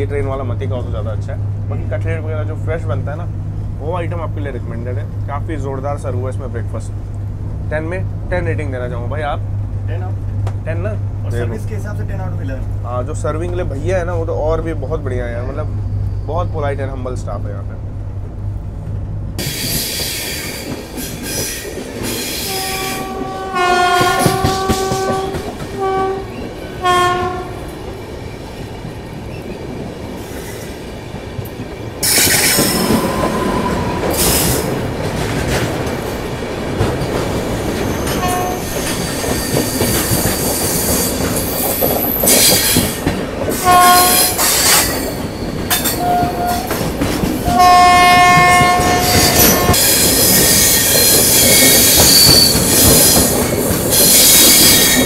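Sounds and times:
train rumbling and clattering: 0:00.0 - 0:55.0
train horn blasts: 0:22.4 - 0:27.8, 0:38.0 - 0:38.8, 0:43.6 - 0:45.0, 0:45.8 - 0:46.8, 0:47.4 - 0:50.9.

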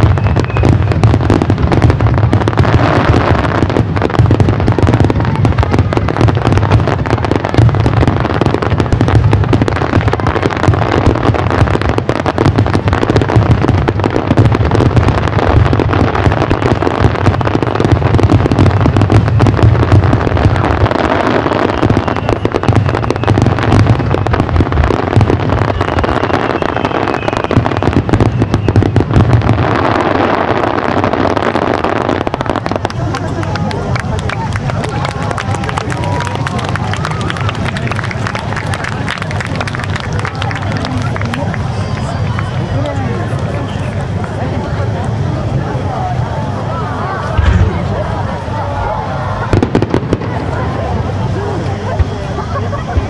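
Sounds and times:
fireworks bursting in a barrage: 0:00.0 - 0:53.0
deep rumble: 0:39.4 - 0:51.6.

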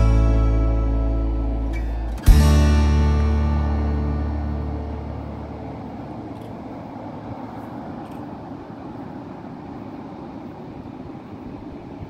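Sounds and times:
ocean surf breaking: 0:04.4 - 0:12.0.

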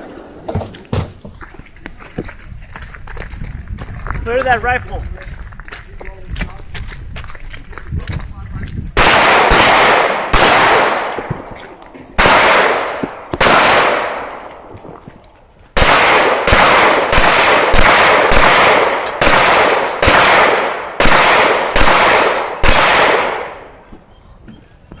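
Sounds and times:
rifle shots echoing: 0:09.0 - 0:14.7, 0:15.8 - 0:23.7.

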